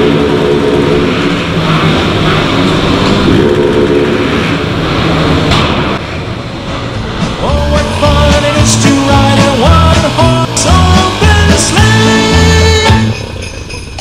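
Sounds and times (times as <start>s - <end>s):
motorcycles riding through tunnel: 0.0s - 14.0s
single-cylinder engine under throttle: 7.5s - 13.2s.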